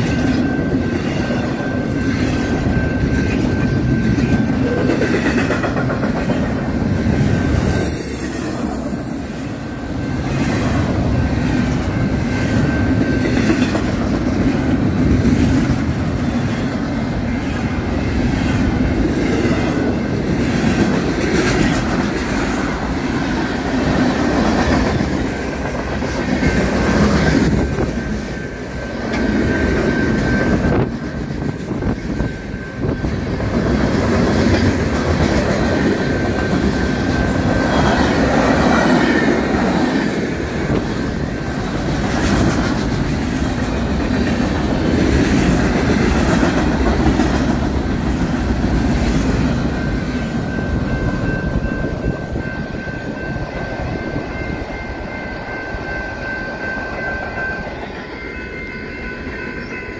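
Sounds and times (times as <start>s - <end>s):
train wheels clacking over rail joints: 0.0s - 6.7s
crossing bell ringing: 0.0s - 59.9s.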